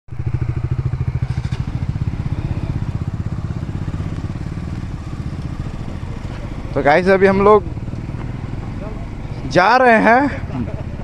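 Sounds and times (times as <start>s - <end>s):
motorcycle engine running: 0.1s - 11.0s.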